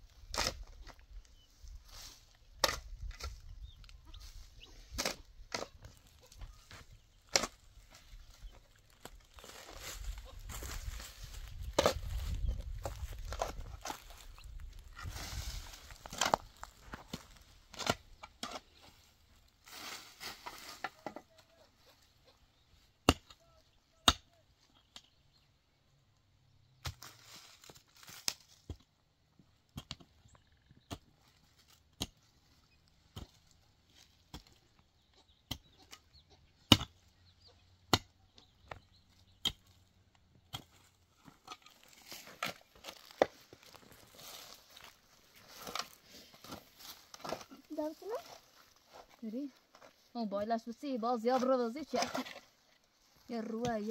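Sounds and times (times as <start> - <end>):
loose earth scraping: 0.0 - 24.1, 26.8 - 53.9
shovel striking stony ground: 4.9 - 7.7, 10.5 - 18.6, 35.4 - 37.0, 39.4 - 39.8, 40.5 - 47.6.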